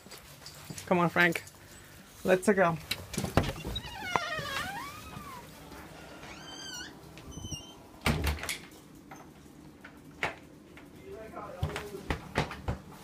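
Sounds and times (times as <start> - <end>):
pet whining cry: 3.5 - 7.8
door thudding shut: 8.0 - 8.5.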